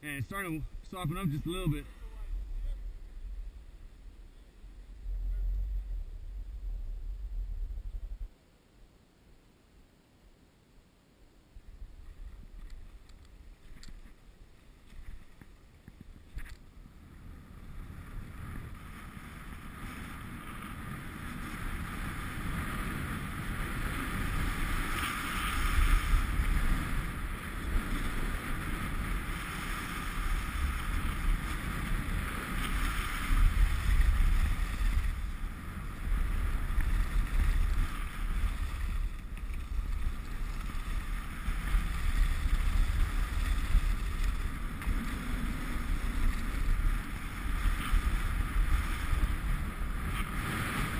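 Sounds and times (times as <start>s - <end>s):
wind rushing over microphone: 0.0s - 8.4s, 15.0s - 50.9s
skis hissing over snow: 17.6s - 50.9s.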